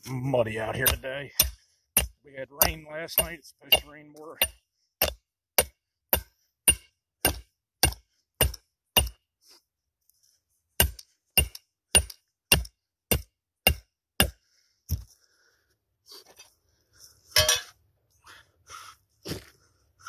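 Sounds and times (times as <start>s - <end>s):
hammer striking metal stake driver: 0.8s - 9.2s, 10.8s - 15.0s.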